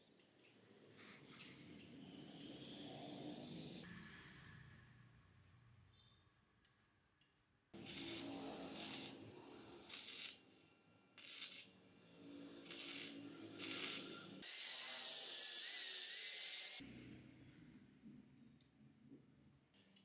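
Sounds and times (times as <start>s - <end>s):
arc welding crackling and hissing: 7.8s - 10.6s, 11.2s - 11.7s, 12.6s - 16.8s.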